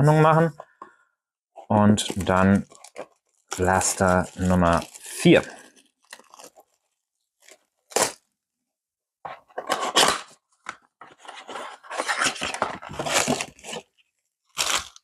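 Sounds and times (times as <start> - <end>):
cardboard and plastic wrap rustling: 2.0 - 8.2, 11.1 - 13.9.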